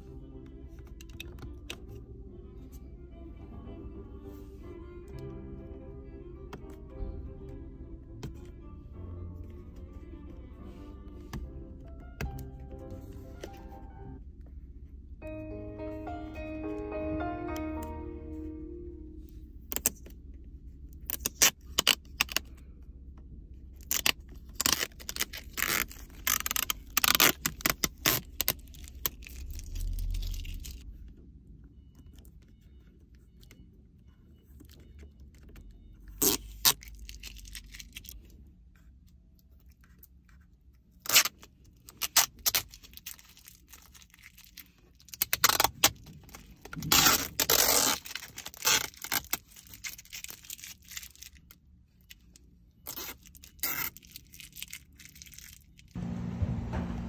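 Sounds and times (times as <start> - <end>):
low steady hum: 0.0 - 57.0
plastic film peeling and crinkling: 21.0 - 22.5, 23.7 - 31.0, 36.1 - 38.4, 41.0 - 56.0.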